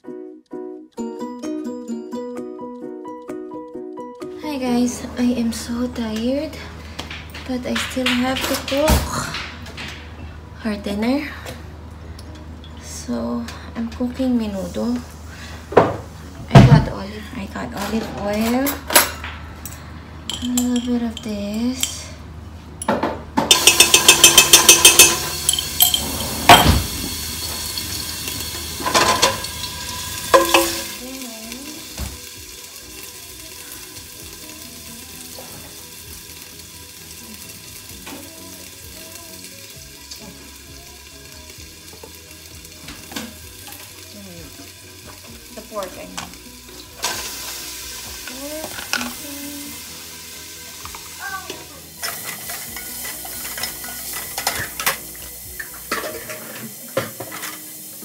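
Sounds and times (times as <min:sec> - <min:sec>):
meat sizzling in a pot: 0:23.5 - 0:58.0.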